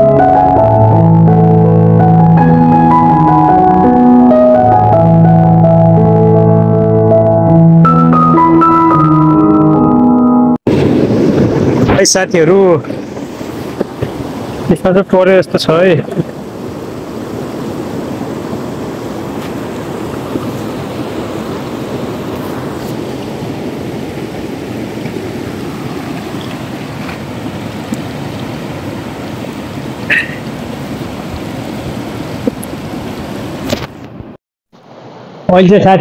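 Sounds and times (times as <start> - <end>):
river rapids rushing over stones: 12.0 - 33.7
short high-pitched sound: 30.1 - 30.4.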